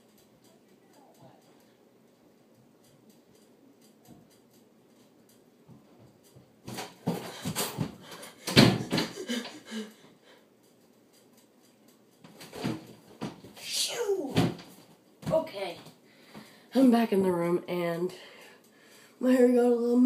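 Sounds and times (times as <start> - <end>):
boy vocal sounds: 13.6 - 14.6.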